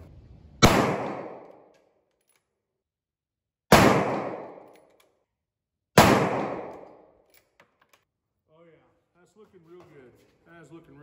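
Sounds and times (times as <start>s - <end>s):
rifle shots: 0.0s - 1.7s, 3.7s - 4.8s, 6.0s - 7.0s.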